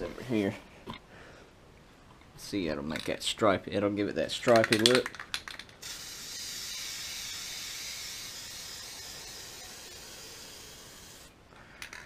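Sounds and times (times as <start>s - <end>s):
spray paint can hissing: 5.8s - 11.3s.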